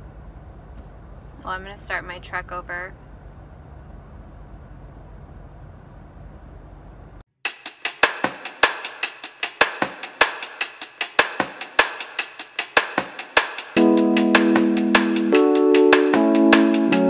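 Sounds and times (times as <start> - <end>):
fast drum-kit beat with cymbals: 7.4 - 17.0.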